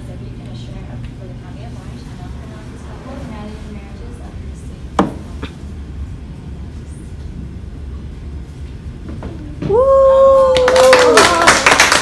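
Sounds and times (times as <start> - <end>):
person whooping: 9.6 - 12.0
applause: 10.4 - 12.0.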